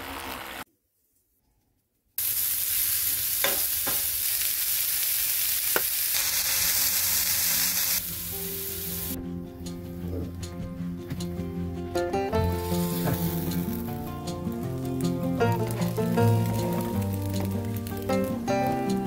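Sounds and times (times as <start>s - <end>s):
vegetables sizzling in a frying pan: 2.2s - 9.2s, 12.4s - 19.0s
soft background music: 8.0s - 19.0s.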